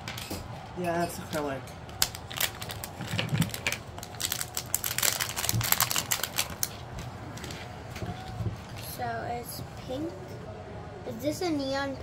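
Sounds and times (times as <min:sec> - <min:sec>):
plastic bag crinkling: 0:02.0 - 0:07.7.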